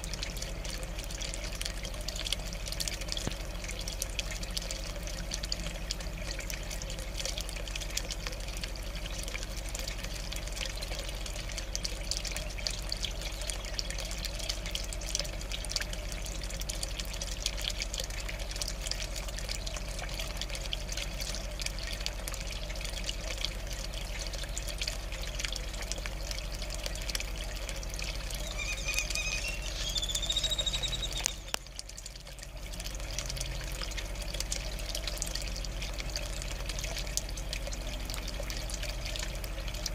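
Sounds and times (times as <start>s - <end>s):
low steady hum: 0.0s - 39.9s
water trickling: 0.0s - 39.9s
rising whistle-like sound: 28.4s - 31.6s.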